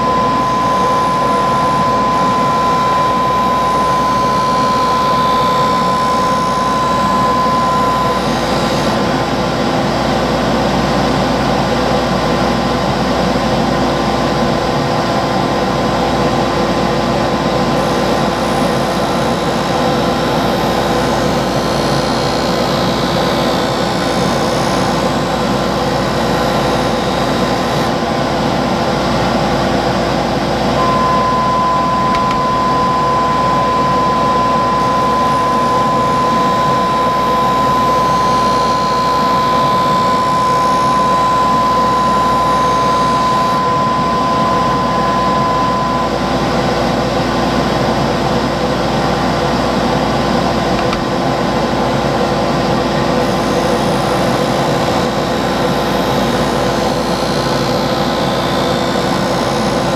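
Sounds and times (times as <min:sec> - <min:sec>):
sharpening machine motor: 0:00.0 - 0:09.9, 0:17.4 - 0:28.0, 0:30.8 - 0:46.3
steady high whine: 0:00.0 - 0:59.9.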